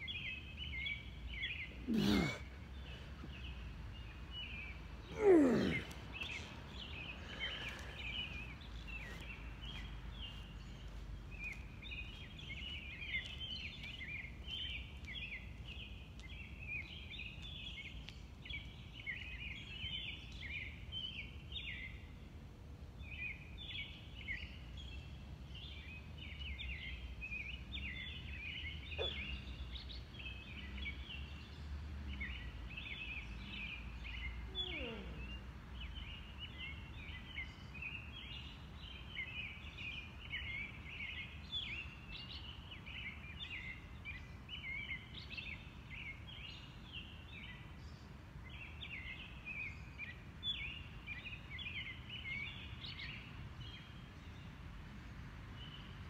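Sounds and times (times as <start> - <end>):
birds singing: 0.0 - 22.4, 23.0 - 54.6.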